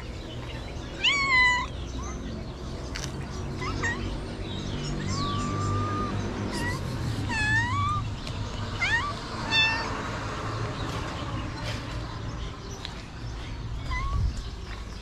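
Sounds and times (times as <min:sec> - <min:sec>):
cats meowing: 0:00.9 - 0:02.3, 0:03.5 - 0:10.2, 0:13.7 - 0:14.6.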